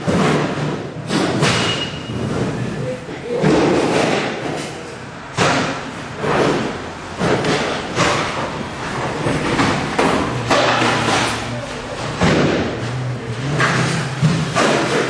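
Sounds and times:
heavy thuds and bangs: 0:05.3 - 0:15.0.

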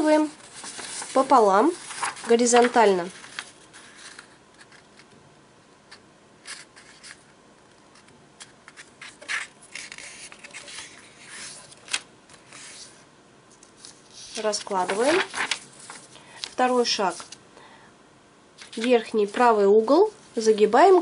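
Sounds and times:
paper crackling: 0:00.0 - 0:05.1, 0:07.9 - 0:12.9, 0:13.6 - 0:17.4, 0:18.6 - 0:19.4
paper rustling: 0:00.0 - 0:05.1, 0:06.4 - 0:07.3, 0:07.9 - 0:17.4, 0:18.6 - 0:19.5
fingers rubbing along paper fold: 0:00.4 - 0:04.8, 0:08.7 - 0:13.0, 0:13.8 - 0:16.1.

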